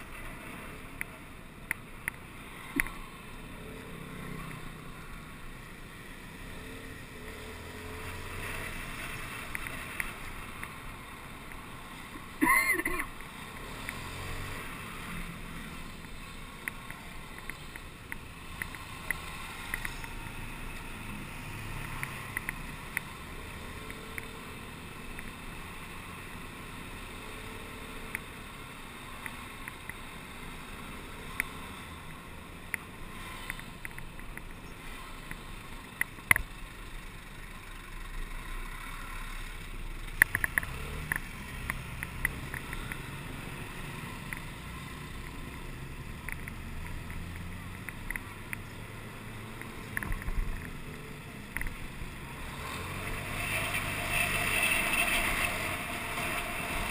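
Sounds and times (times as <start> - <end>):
low traffic rumble: 0.0 - 56.9
small clicks: 0.9 - 3.0, 8.4 - 10.8, 15.8 - 20.5, 21.7 - 23.2, 23.8 - 24.4, 31.3 - 36.5, 40.1 - 51.8.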